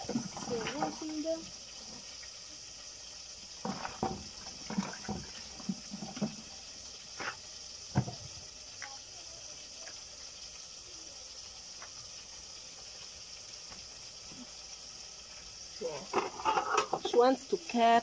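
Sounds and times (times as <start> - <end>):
steady high hiss: 0.0 - 18.0
water splashing in plastic basin: 3.6 - 6.4.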